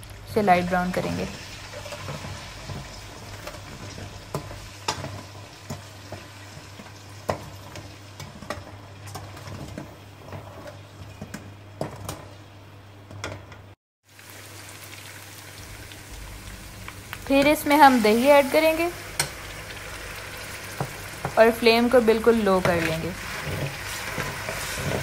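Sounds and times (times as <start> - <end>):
onions sizzling in hot oil: 0.0 - 12.6, 14.0 - 25.0
steel spatula scraping pan: 22.7 - 25.0.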